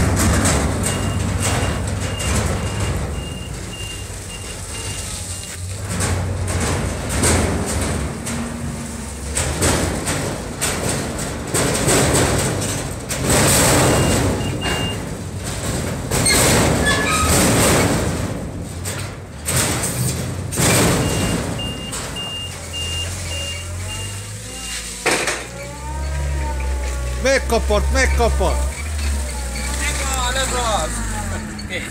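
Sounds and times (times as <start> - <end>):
forklift engine revving: 0.0 - 18.0, 19.4 - 31.9
reversing beeper: 21.0 - 24.8.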